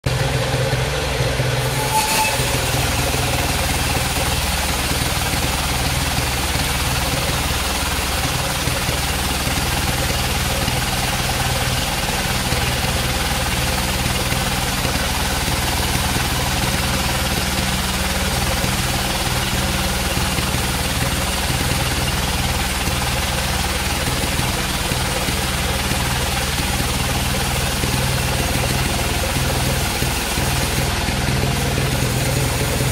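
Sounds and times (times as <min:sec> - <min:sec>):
sawmill mechanical drone: 0:00.0 - 0:32.9
saw blade cutting hiss: 0:01.6 - 0:06.0, 0:29.9 - 0:30.9.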